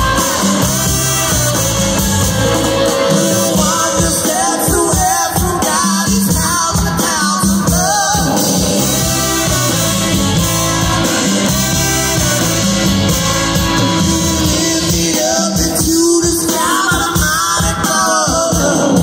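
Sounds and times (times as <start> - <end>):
live rock band playing: 0.0 - 19.0
women singing: 2.8 - 8.8.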